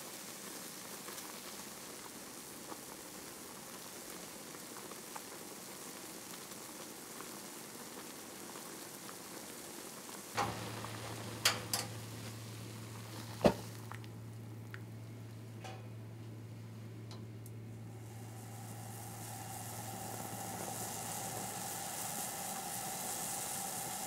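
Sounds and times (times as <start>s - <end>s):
liquid boiling in metal pot: 0.0s - 24.0s
low steady hum: 10.4s - 24.0s.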